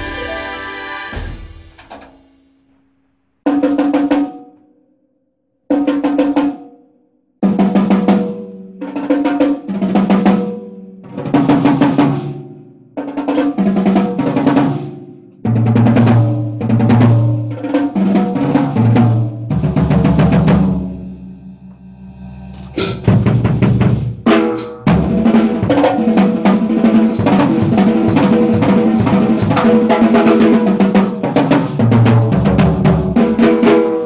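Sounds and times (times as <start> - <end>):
drum kit playing: 0.0 - 2.6, 15.5 - 34.0.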